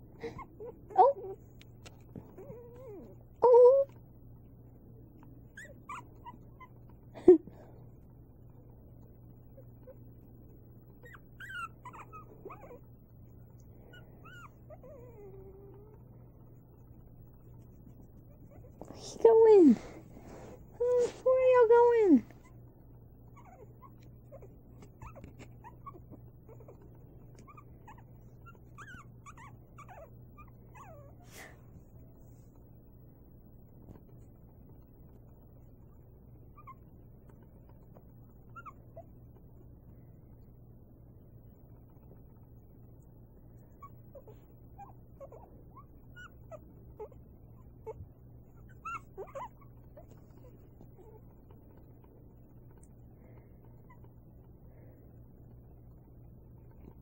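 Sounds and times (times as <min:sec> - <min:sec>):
puppies whimpering: 0:02.2 - 0:03.9, 0:05.5 - 0:07.0, 0:10.9 - 0:12.9, 0:13.8 - 0:16.2, 0:23.3 - 0:31.3, 0:36.5 - 0:39.4, 0:43.7 - 0:54.2.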